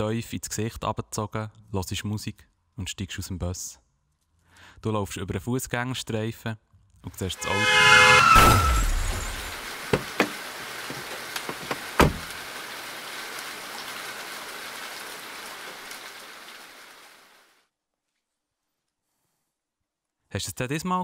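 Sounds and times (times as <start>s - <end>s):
rain falling: 8.6s - 17.6s
sharp knocks: 9.9s - 12.4s
heavy thud: 11.6s - 12.3s.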